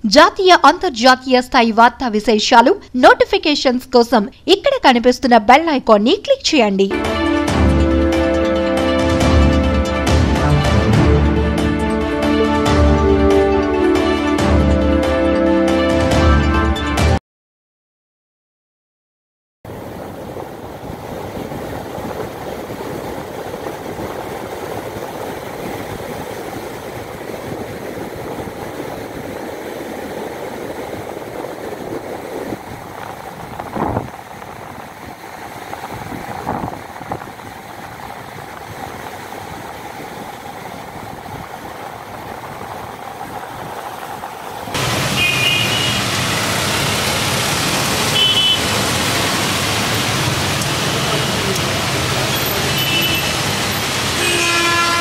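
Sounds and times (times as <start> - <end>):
heavy rain: 19.7 - 55.0
street traffic: 19.7 - 55.0
surf rushing: 19.7 - 55.0
waves breaking: 19.7 - 55.0.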